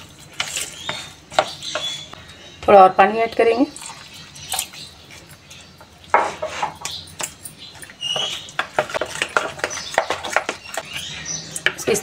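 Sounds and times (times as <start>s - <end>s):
metal spoon scraping batter in bowl: 0.0s - 2.1s, 5.1s - 12.0s.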